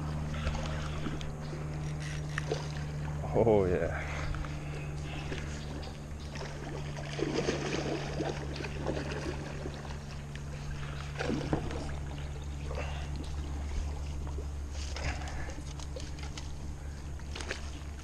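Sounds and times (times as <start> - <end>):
steady low hum: 0.0 - 18.0
fish splashing in water: 5.0 - 16.4.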